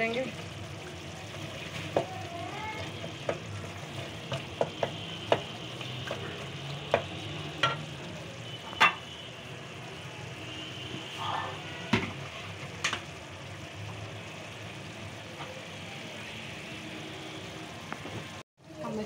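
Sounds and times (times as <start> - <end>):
meat sizzling in a pot: 0.0 - 19.0
wooden spoon tapping pot: 3.1 - 3.5, 4.2 - 7.9.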